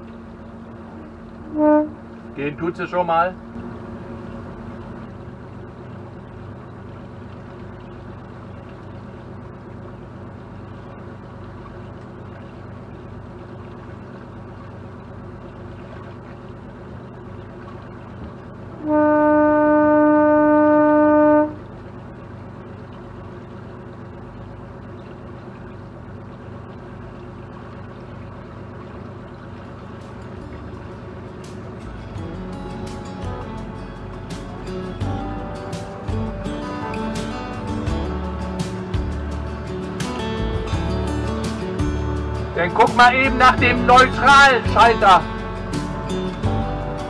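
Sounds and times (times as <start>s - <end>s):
boat engine humming: 0.0s - 47.0s
boat horn blast: 1.1s - 4.2s, 18.6s - 21.9s, 33.3s - 38.6s, 42.4s - 47.0s.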